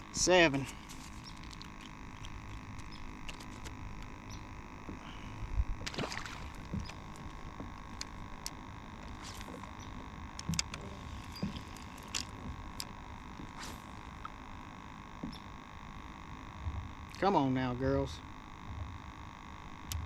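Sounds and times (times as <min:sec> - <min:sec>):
faint high hum: 0:00.0 - 0:20.0.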